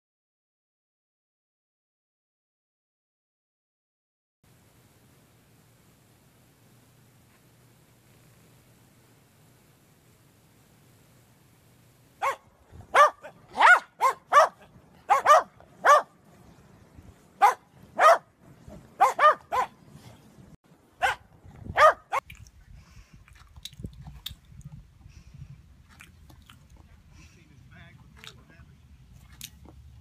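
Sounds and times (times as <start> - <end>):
dogs barking: 12.2 - 16.2, 17.4 - 19.8, 21.0 - 22.2.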